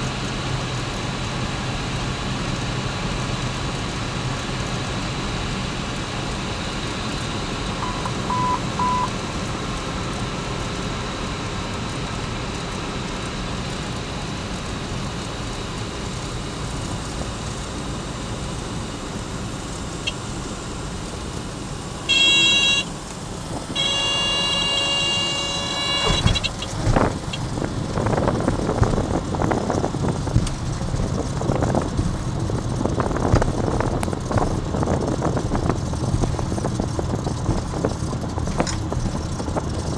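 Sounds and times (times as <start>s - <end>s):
plane engine droning: 0.0s - 39.9s
wheels rumbling on runway: 0.0s - 39.9s
short beeps: 7.8s - 9.1s, 22.1s - 22.9s, 23.8s - 26.6s
stall warning horn: 22.0s - 23.0s, 23.7s - 26.7s.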